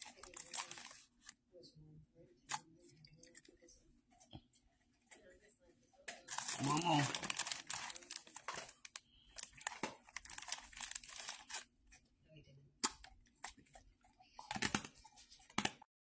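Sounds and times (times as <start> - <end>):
dog crunching pork rinds: 6.4 - 11.6.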